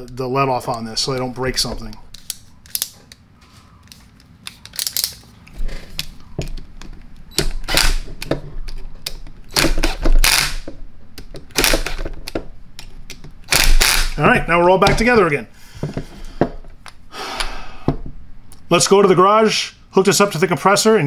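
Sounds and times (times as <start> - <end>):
drill clutch ratcheting clatter: 13.5 - 14.2.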